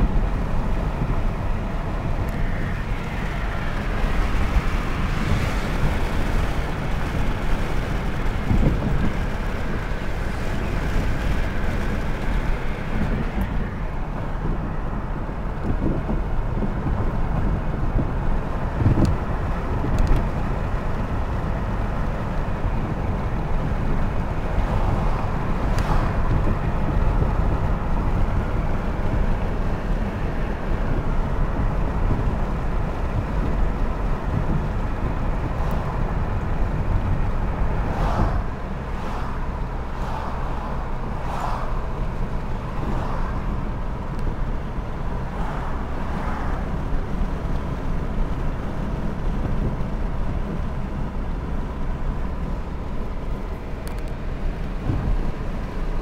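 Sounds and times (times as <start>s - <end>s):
car road noise rumble: 0.0s - 56.0s.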